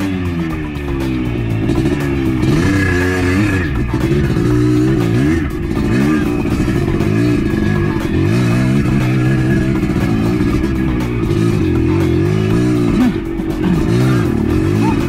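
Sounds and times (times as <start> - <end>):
background music: 0.0 - 15.0
dirt bike engine revving: 0.0 - 15.0.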